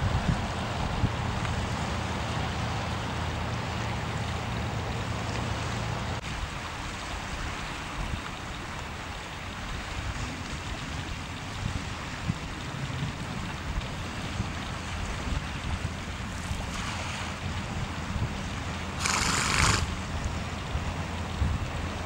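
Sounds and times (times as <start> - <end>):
wind on microphone: 0.0 - 1.9, 9.6 - 22.0
river washing: 0.0 - 22.0.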